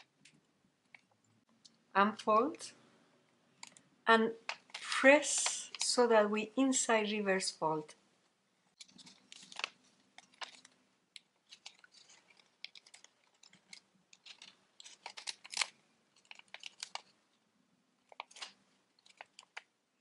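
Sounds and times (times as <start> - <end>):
paper crackling and rustling: 8.8 - 17.2, 18.0 - 19.7.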